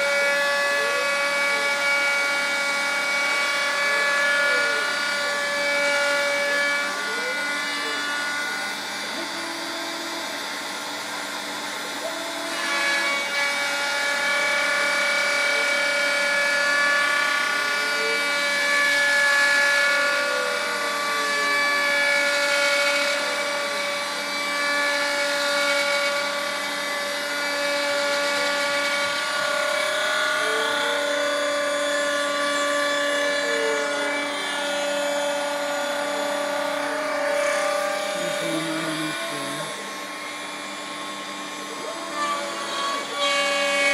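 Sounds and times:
router whine cutting wood: 0.0s - 43.9s
stepper motors gliding pitch: 32.2s - 40.4s.

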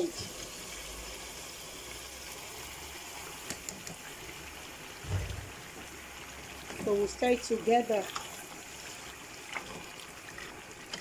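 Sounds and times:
food frying in oil: 0.0s - 11.0s
dull bump: 5.0s - 5.6s.

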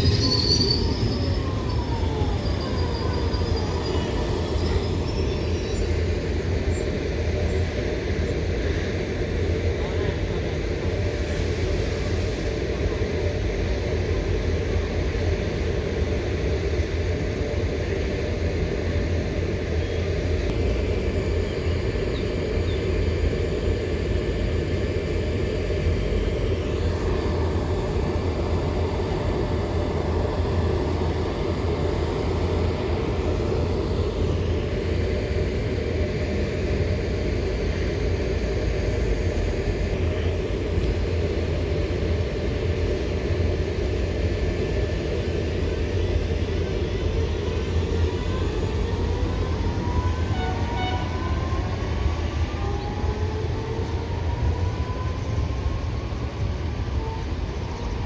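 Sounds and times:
electric train rumbling: 0.0s - 58.0s.

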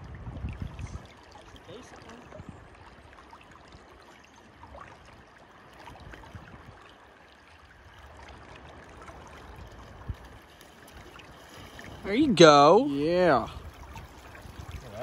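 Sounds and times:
river water rushing: 6.9s - 15.0s.

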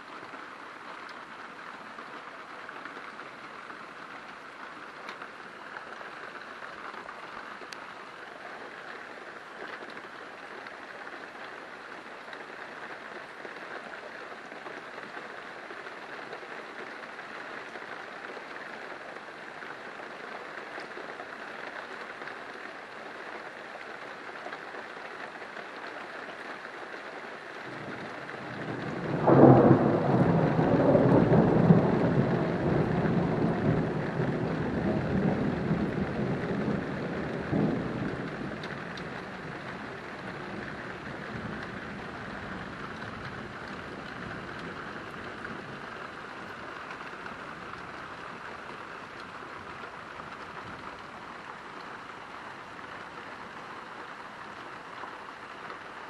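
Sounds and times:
steady rain falling: 0.0s - 56.0s
thunder clap rumbling: 27.8s - 44.7s.

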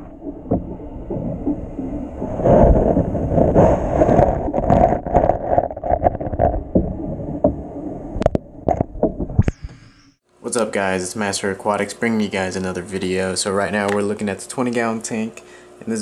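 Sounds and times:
muffled underwater bubbling: 0.0s - 9.8s.

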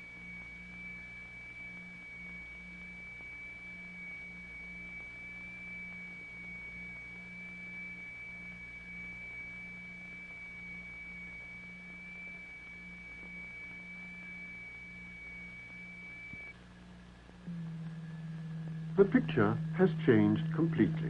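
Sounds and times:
steady high tone: 0.0s - 16.6s, 17.4s - 21.0s
throbbing low hum: 7.4s - 21.0s.

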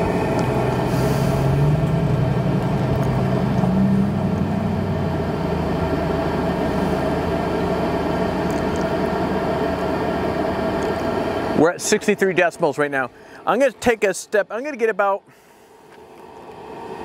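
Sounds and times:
air heater fan whirring: 0.0s - 17.0s.

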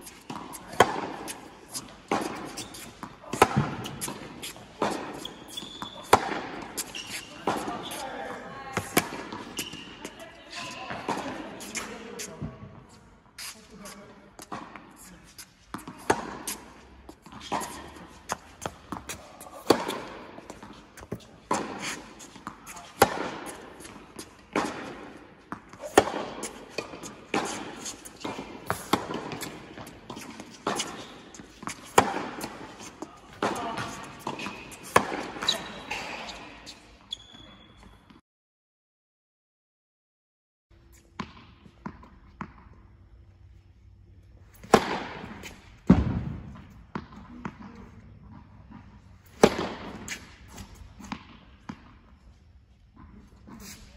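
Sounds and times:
tennis racket hitting ball: 0.0s - 12.3s, 14.4s - 36.3s, 44.6s - 47.7s, 48.7s - 51.9s
ball bouncing on hard court: 0.3s - 12.8s, 15.7s - 36.4s, 44.6s - 50.4s.

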